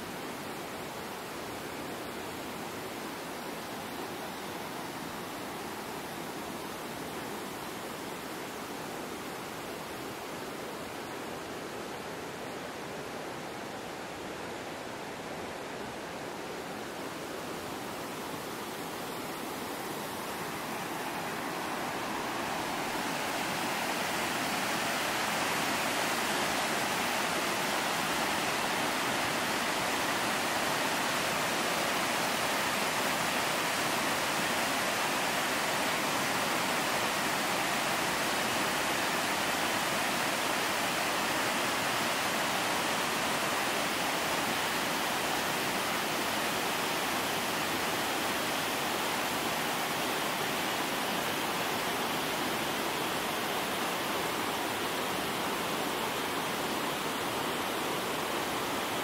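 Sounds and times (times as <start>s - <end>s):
river rushing over rocks: 0.0s - 59.0s.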